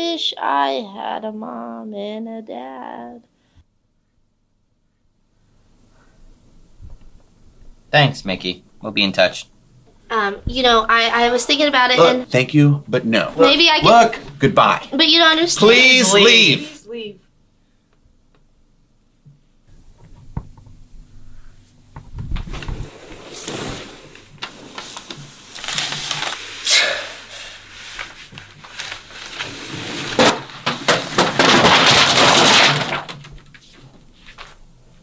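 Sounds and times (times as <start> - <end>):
plastic bottles crackling: 23.4 - 26.8, 28.0 - 33.6.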